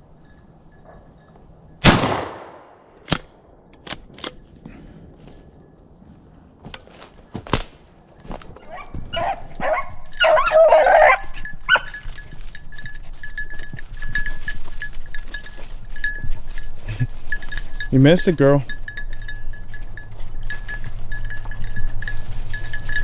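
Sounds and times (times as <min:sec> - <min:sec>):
collar bell jingling: 0:00.0 - 0:01.8, 0:08.1 - 0:23.0
dog baying: 0:08.6 - 0:12.0.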